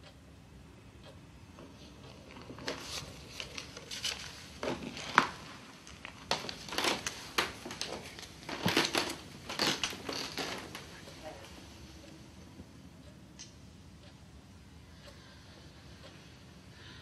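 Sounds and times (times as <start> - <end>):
rustling: 2.1 - 11.1.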